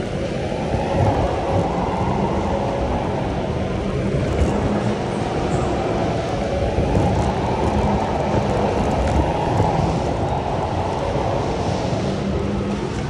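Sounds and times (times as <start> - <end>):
go-kart rumble and rushing air: 3.8 - 13.0.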